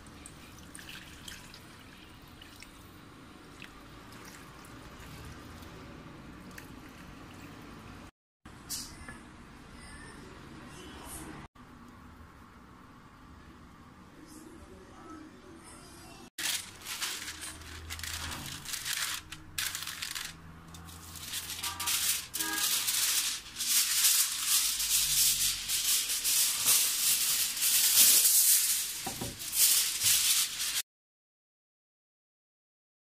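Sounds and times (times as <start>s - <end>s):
parchment paper crinkling: 16.4s - 30.8s.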